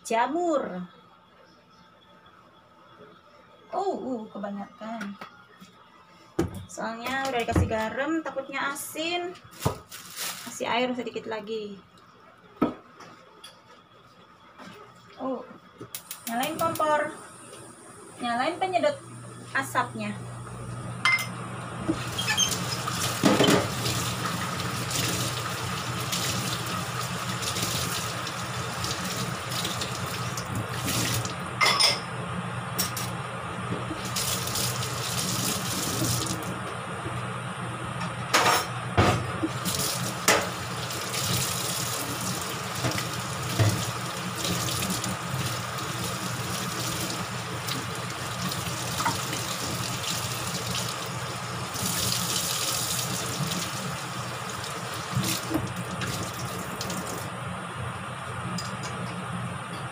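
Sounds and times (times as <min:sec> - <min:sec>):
range hood fan running: 0:13.9 - 0:59.9.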